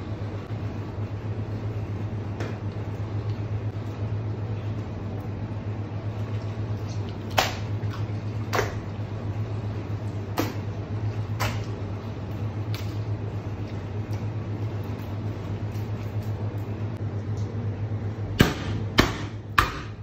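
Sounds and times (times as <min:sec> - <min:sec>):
low machine hum: 0:00.0 - 0:20.0
wet slaps on cutting board: 0:07.3 - 0:07.7.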